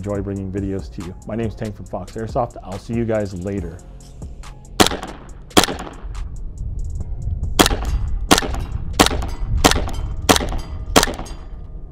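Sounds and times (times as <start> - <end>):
airsoft pistol shots: 4.8 - 6.2, 7.6 - 11.4.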